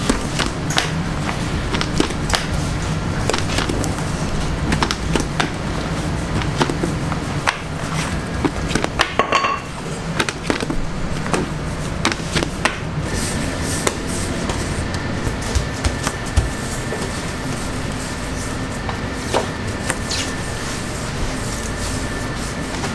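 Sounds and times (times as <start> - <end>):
low machine hum: 0.0 - 22.9
trays and utensils clinking: 8.9 - 10.5.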